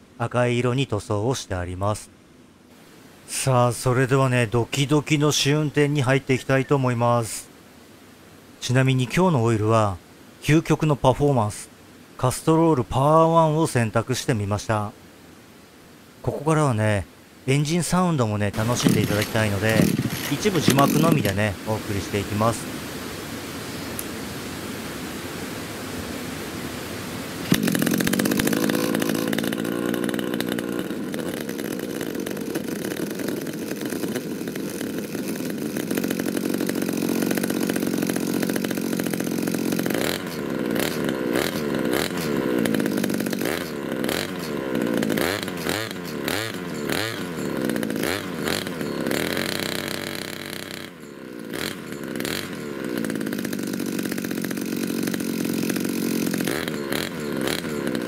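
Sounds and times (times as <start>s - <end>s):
two-stroke brush cutter engine: 18.5s - 22.6s, 27.4s - 58.0s.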